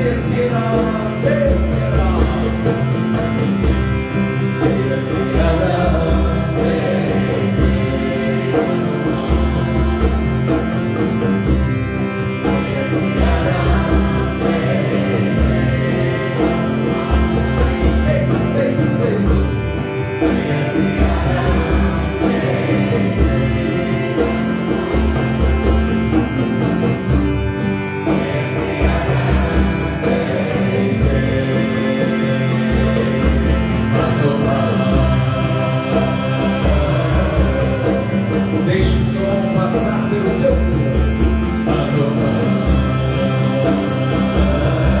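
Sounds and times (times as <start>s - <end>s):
acoustic guitars: 0.0s - 45.0s
group singing a devotional chant: 4.7s - 10.6s, 12.5s - 18.0s, 20.2s - 25.8s, 28.1s - 38.5s, 41.8s - 45.0s.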